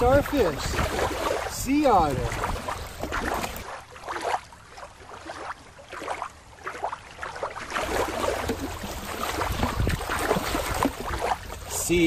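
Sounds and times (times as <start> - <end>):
low wind rumble on microphone: 0.0 - 3.6, 7.8 - 12.0
water splashing and lapping: 0.0 - 12.0.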